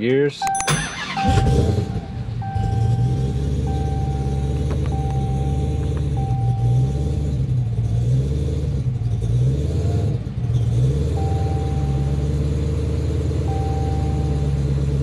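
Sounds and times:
electronic beep: 0:00.4 - 0:07.0, 0:11.2 - 0:12.2, 0:13.5 - 0:14.4
car engine idling: 0:00.6 - 0:15.0.

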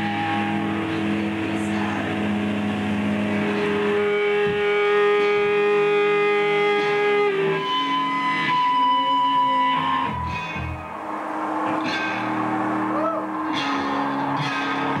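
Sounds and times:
ambient electric guitar drone: 0:00.0 - 0:15.0.

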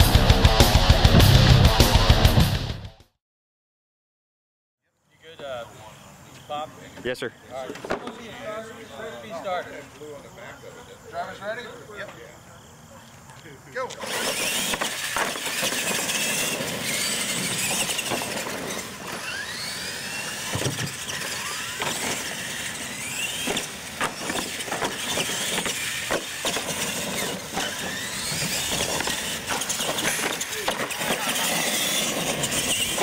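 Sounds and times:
toy truck motors whining: 0:13.8 - 0:33.0
trucks knocking on wooden ramps: 0:14.6 - 0:19.2, 0:20.4 - 0:22.2, 0:23.0 - 0:33.0.

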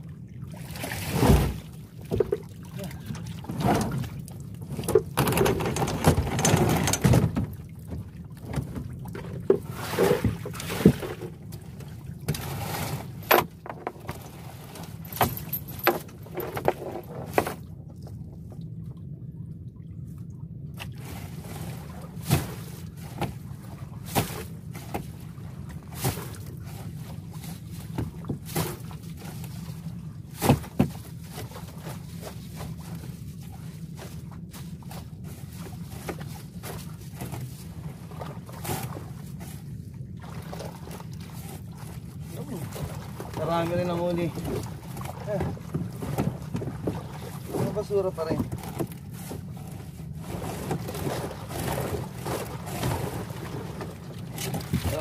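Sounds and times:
steady low hum: 0:00.0 - 0:55.0
water splashing off netting: 0:00.5 - 0:02.5
sharp knocks against boat: 0:01.2 - 0:02.5, 0:03.4 - 0:11.4, 0:22.2 - 0:23.4, 0:27.8 - 0:28.9, 0:30.4 - 0:31.5, 0:44.2 - 0:49.5.

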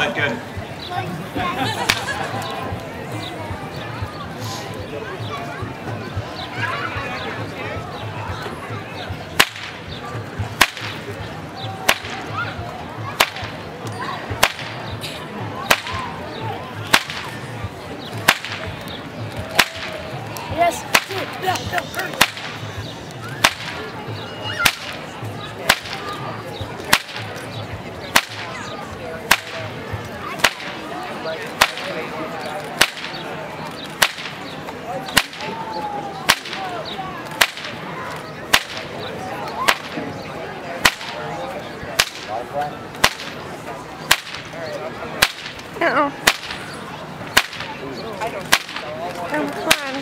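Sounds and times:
faint crowd chatter: 0:00.0 - 0:50.0
whip cracking: 0:09.4 - 0:09.8, 0:10.6 - 0:11.0, 0:11.8 - 0:12.3, 0:13.2 - 0:13.6, 0:14.4 - 0:14.8, 0:15.7 - 0:16.1, 0:16.8 - 0:17.4, 0:18.2 - 0:21.4, 0:22.0 - 0:22.6, 0:23.2 - 0:23.9, 0:24.6 - 0:25.0, 0:25.6 - 0:26.1, 0:26.8 - 0:27.4, 0:28.1 - 0:28.6, 0:29.3 - 0:29.7, 0:30.4 - 0:30.8, 0:31.5 - 0:32.0, 0:32.6 - 0:33.2, 0:33.9 - 0:34.4, 0:35.1 - 0:35.6, 0:36.2 - 0:36.7, 0:37.3 - 0:37.8, 0:38.5 - 0:38.9, 0:39.6 - 0:40.0, 0:40.8 - 0:41.2, 0:42.0 - 0:42.3, 0:43.0 - 0:43.4, 0:44.1 - 0:44.6, 0:45.2 - 0:46.7, 0:47.3 - 0:47.8, 0:48.4 - 0:49.0.

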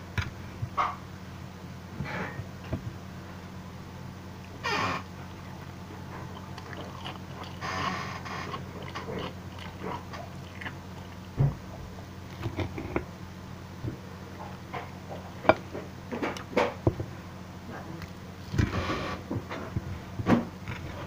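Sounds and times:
person chewing: 0:04.4 - 0:11.4, 0:12.2 - 0:13.1.

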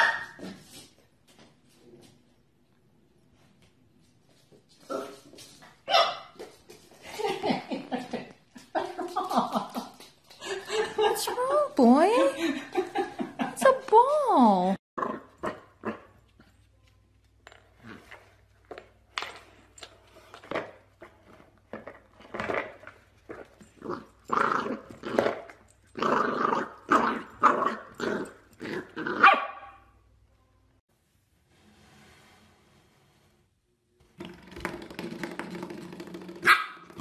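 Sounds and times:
small dog yapping: 0:00.0 - 0:00.4, 0:36.4 - 0:36.8.

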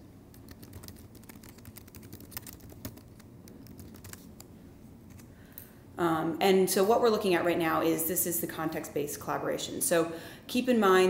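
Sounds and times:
typing on keyboard: 0:00.3 - 0:04.2.

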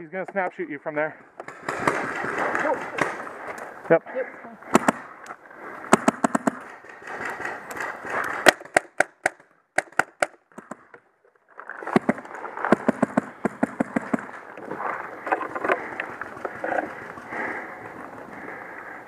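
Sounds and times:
paintball markers firing: 0:01.4 - 0:03.6, 0:04.6 - 0:05.3, 0:05.9 - 0:10.9, 0:11.8 - 0:14.6.

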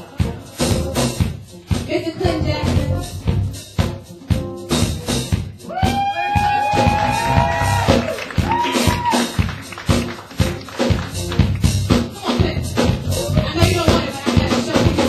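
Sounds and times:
live band playing: 0:00.0 - 0:15.0.

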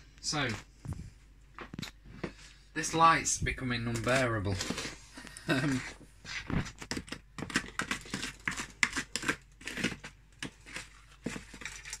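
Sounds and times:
utensil scraping mixing bowl: 0:03.9 - 0:12.0.

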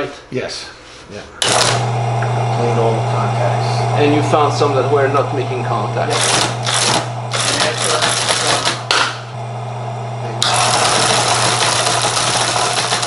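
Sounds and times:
motor humming: 0:01.4 - 0:13.0
teleprinter clattering with keystrokes: 0:10.4 - 0:13.0.

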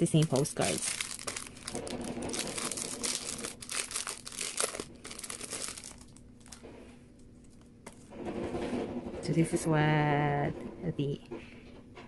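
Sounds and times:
plastic wrap crinkling: 0:00.0 - 0:06.7.

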